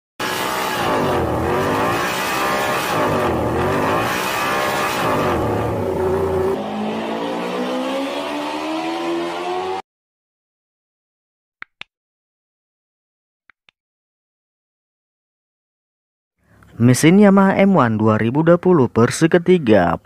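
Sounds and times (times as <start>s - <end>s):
motorcycle engine revving: 0.2s - 9.8s.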